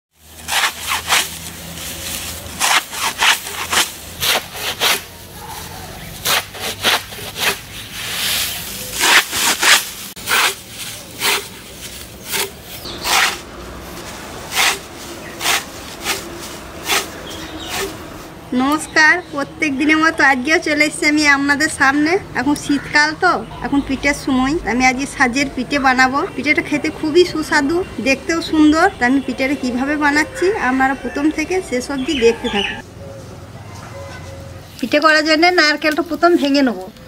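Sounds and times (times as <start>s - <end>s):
dry straw rustling: 0.2s - 18.5s, 33.2s - 37.0s
plant stalks rasping against blade: 0.3s - 18.3s.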